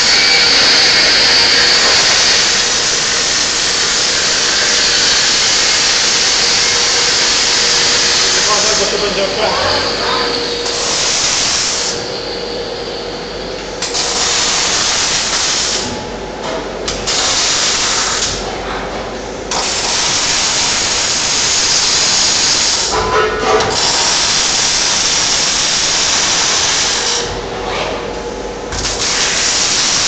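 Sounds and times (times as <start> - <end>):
welding arc hissing crackle: 13.9 - 15.9, 16.9 - 18.4, 19.5 - 22.9, 28.8 - 30.0.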